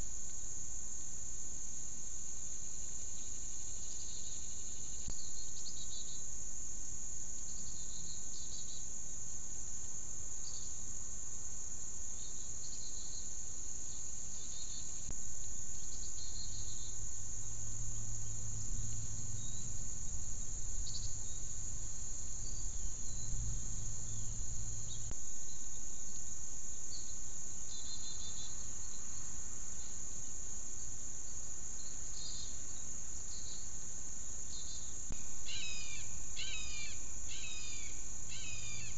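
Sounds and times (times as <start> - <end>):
high-pitched insect chorus: 0.0 - 38.9
low hum: 15.0 - 30.8.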